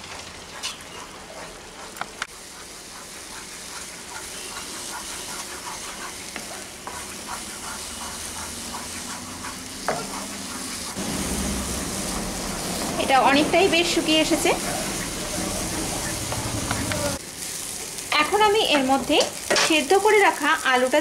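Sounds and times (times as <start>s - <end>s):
wooden spatula scraping a pan: 0.0s - 11.0s
food sizzling: 0.0s - 21.0s.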